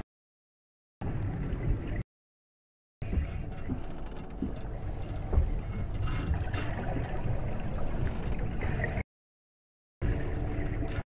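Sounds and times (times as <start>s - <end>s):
water gurgling and sloshing: 1.0s - 2.0s, 3.0s - 9.0s, 10.0s - 11.0s.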